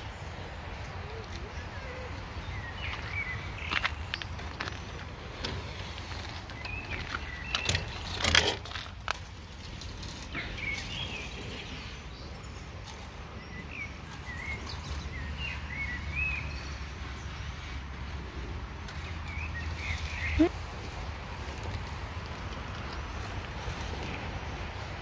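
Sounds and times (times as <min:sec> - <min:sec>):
small birds chirping: 0:00.0 - 0:25.0
sharp clicks and rustling: 0:03.7 - 0:11.0.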